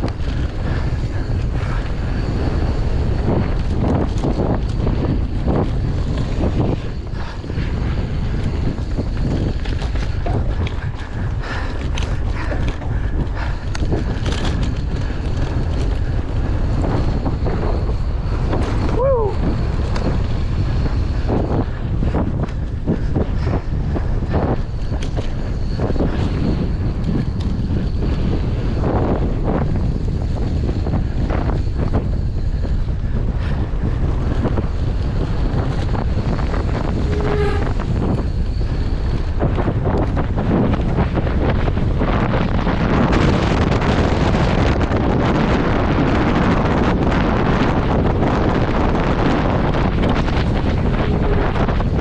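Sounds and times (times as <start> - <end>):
bike rattling over rough ground: 0.0 - 52.0
low rumble: 0.0 - 52.0
wind buffeting microphone: 0.0 - 52.0
brief squeal: 37.0 - 37.8.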